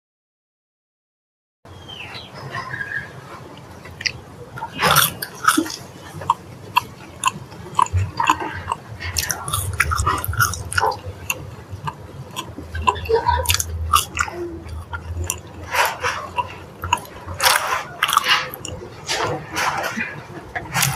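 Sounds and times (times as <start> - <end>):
chewing with wet mouth clicks: 3.5 - 20.0, 20.6 - 20.9
crunchy bites of fried food: 4.8 - 19.2.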